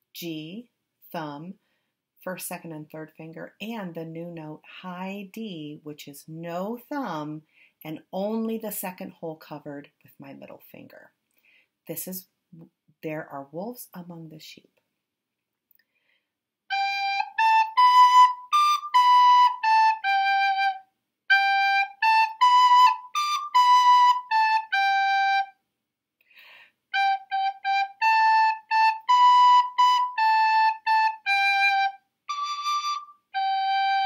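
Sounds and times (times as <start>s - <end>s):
recorder playing a simple tune: 16.7s - 25.6s, 26.9s - 34.0s.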